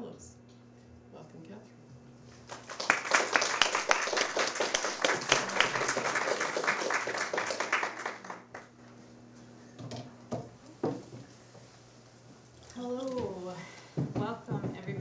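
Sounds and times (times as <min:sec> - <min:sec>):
audience applauding: 0:02.4 - 0:08.7
soft knocks: 0:10.3 - 0:11.3, 0:14.0 - 0:15.0.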